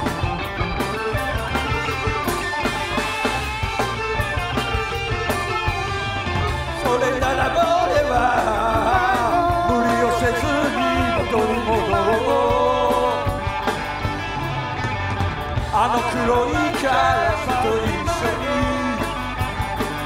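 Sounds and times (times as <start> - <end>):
bass guitar: 0.0 - 20.0
drums: 0.0 - 20.0
electric guitar: 0.0 - 20.0
keyboard: 0.0 - 20.0
person singing long notes: 6.8 - 13.5, 15.7 - 19.2.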